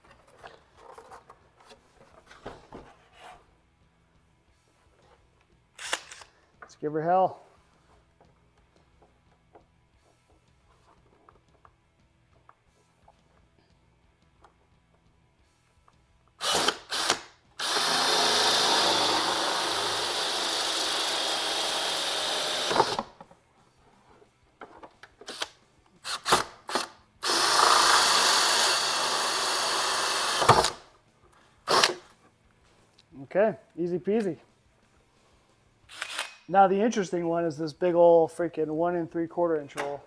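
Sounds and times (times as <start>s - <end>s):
drill hole saw cutting plastic: 16.4s - 23.1s, 26.1s - 30.8s.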